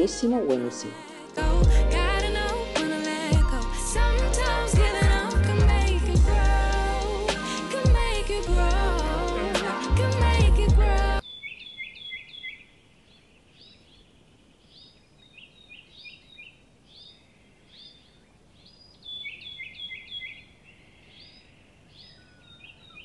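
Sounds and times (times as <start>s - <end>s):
background music: 0.0s - 11.2s
small birds chirping: 11.2s - 23.0s.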